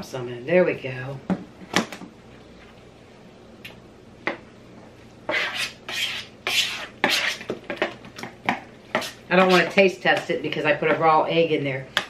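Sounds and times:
spoon scraping thick filling: 5.3 - 7.5, 8.9 - 9.8.

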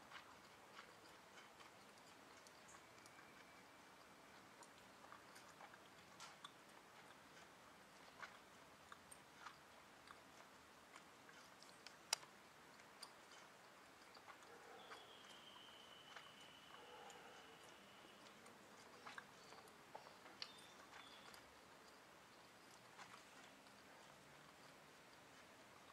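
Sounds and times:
faint clicks and ticks: 0.0 - 25.9.

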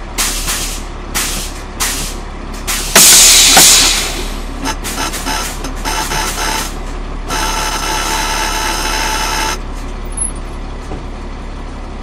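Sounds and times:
truck diesel engine idling: 0.0 - 12.0
loud air hiss: 0.2 - 5.6.

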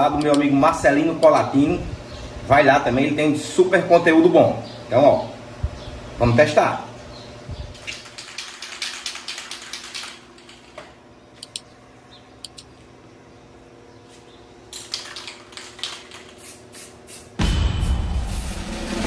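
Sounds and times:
faint hum: 0.0 - 18.5
small objects clicking and tapping: 14.8 - 16.5.

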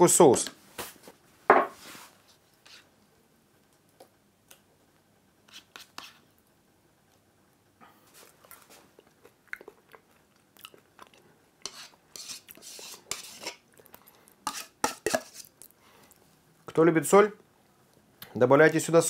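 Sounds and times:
spoon scraping a bowl: 5.5 - 6.3, 11.6 - 13.6, 14.4 - 15.5
chewing sounds: 8.2 - 11.4.

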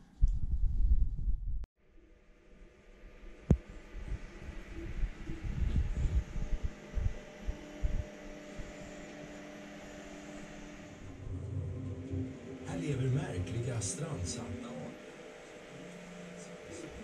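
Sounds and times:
steady hum: 0.0 - 17.0.

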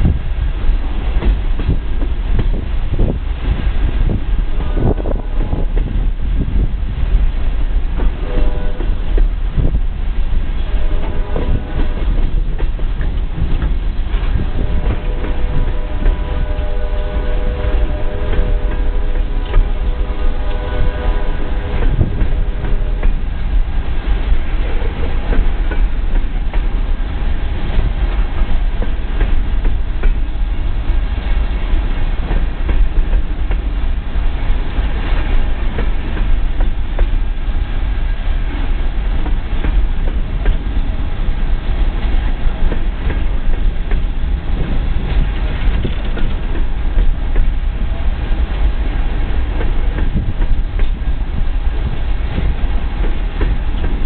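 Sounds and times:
freight train heavy rumble: 0.0 - 54.0
wheels clacking over rail joints: 39.2 - 48.7.

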